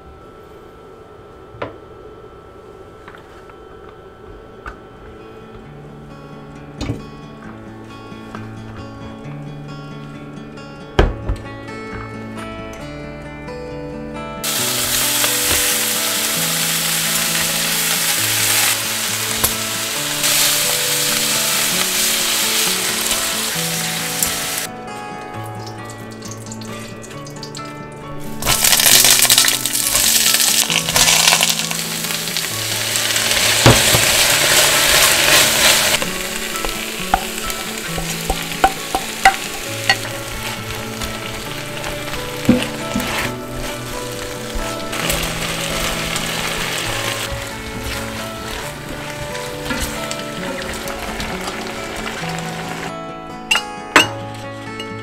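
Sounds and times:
soft music: 0:00.0 - 0:55.0
vegetables sizzling in a pot: 0:14.4 - 0:24.7, 0:28.2 - 0:52.9.

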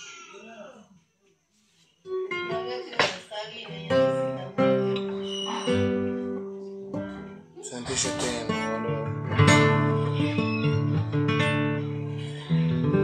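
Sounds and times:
acoustic guitar notes picked: 0:02.1 - 0:13.0
acoustic guitar chords strummed: 0:03.9 - 0:13.0.

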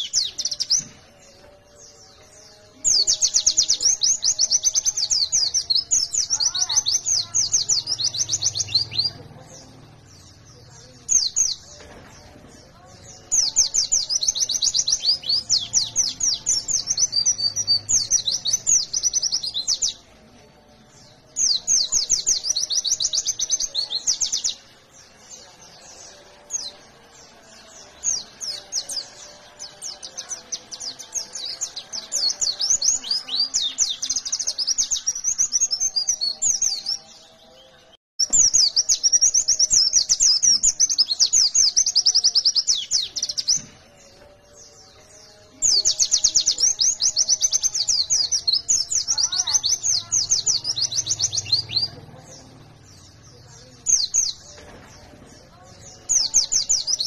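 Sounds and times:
bird twittering song: 0:00.0 - 0:57.0.

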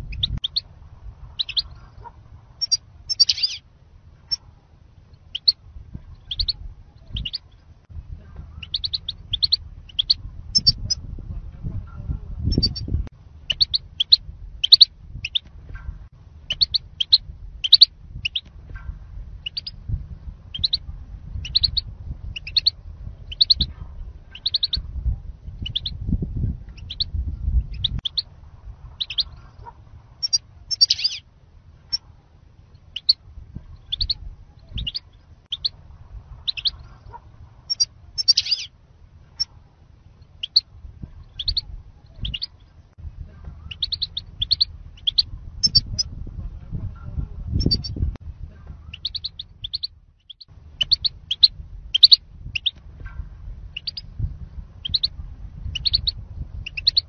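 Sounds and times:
bird chirping: 0:00.0 - 0:00.7, 0:01.3 - 0:03.6, 0:05.1 - 0:07.7, 0:08.5 - 0:11.0, 0:12.4 - 0:15.5, 0:16.5 - 0:18.5, 0:19.4 - 0:19.8, 0:20.5 - 0:20.8, 0:21.4 - 0:23.7, 0:24.3 - 0:24.8, 0:25.6 - 0:26.0, 0:26.7 - 0:28.3, 0:29.0 - 0:31.2, 0:32.7 - 0:33.2, 0:33.8 - 0:35.8, 0:36.4 - 0:38.7, 0:39.3 - 0:42.9, 0:43.6 - 0:46.1, 0:47.6 - 0:48.0, 0:48.8 - 0:52.8, 0:53.7 - 0:54.1, 0:54.8 - 0:55.1, 0:55.7 - 0:57.0
low rumble: 0:00.0 - 0:57.0.

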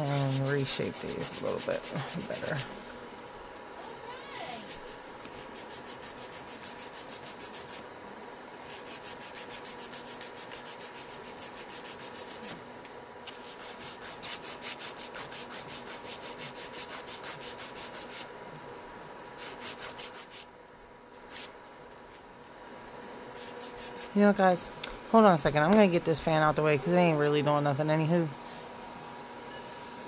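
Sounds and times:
nail file rasping on fingernails: 0:00.0 - 0:02.7, 0:04.5 - 0:07.8, 0:08.6 - 0:12.6, 0:13.3 - 0:18.3, 0:19.4 - 0:20.5, 0:21.2 - 0:21.5, 0:23.4 - 0:24.2
fan humming: 0:00.0 - 0:30.0.

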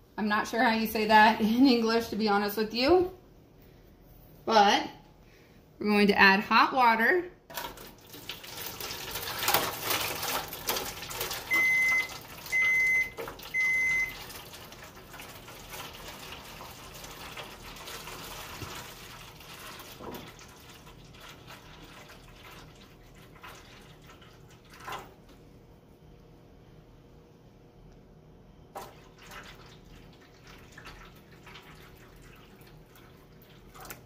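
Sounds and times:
water pouring and splashing: 0:07.5 - 0:25.2, 0:28.8 - 0:34.0.

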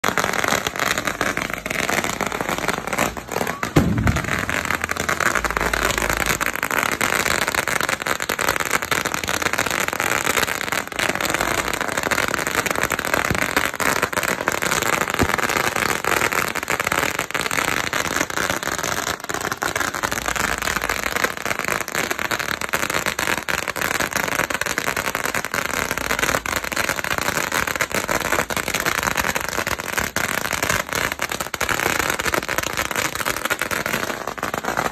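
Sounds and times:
loud firecracker bang: 0:00.0 - 0:07.5
firecrackers crackling: 0:00.0 - 0:34.9.

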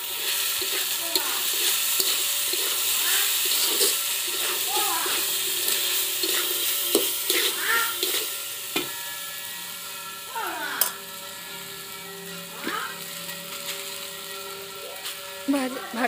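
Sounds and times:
frying sizzle: 0:00.0 - 0:16.0
spatula scraping a metal pan: 0:00.1 - 0:09.1.

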